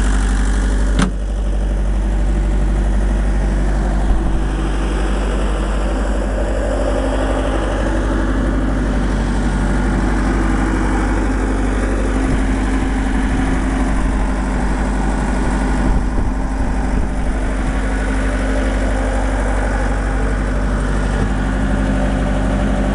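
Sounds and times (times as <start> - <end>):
diesel engine idling: 0.0 - 22.9.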